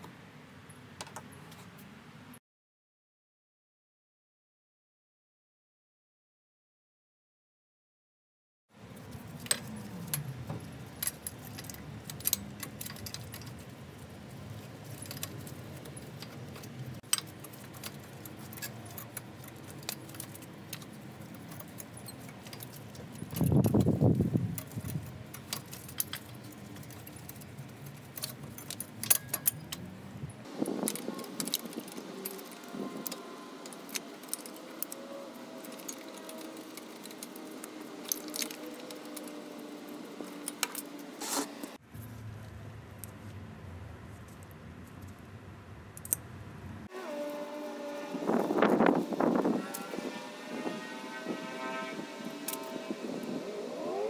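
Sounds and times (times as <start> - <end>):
metal tools clicking: 9.0 - 29.9, 30.7 - 41.0.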